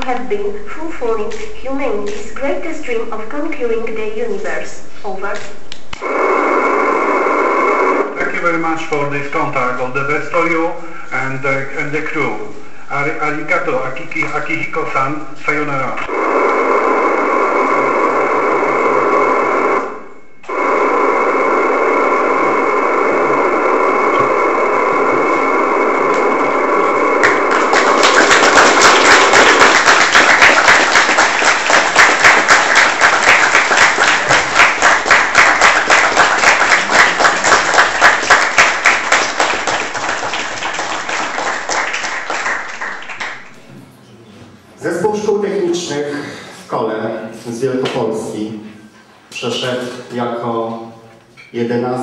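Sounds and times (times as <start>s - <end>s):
radio static hiss: 0.0s - 43.9s
audience applauding: 25.0s - 43.6s.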